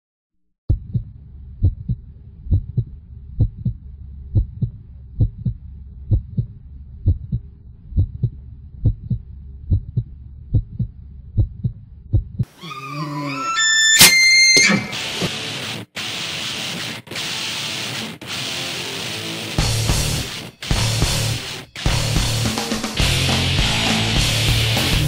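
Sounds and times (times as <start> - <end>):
heartbeat thumps: 0.7 - 12.5.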